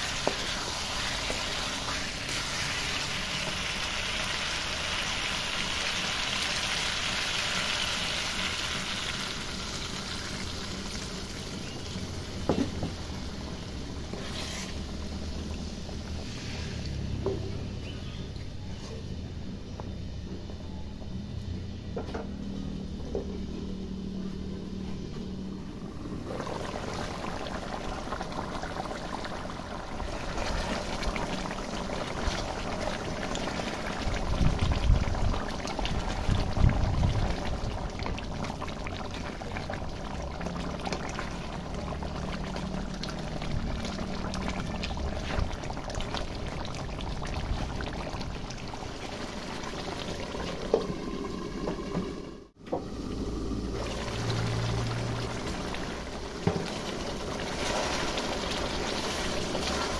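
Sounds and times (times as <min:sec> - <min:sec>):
gravy bubbling and sizzling: 0:00.0 - 0:59.9
spatula stirring in wok: 0:14.0 - 0:14.9.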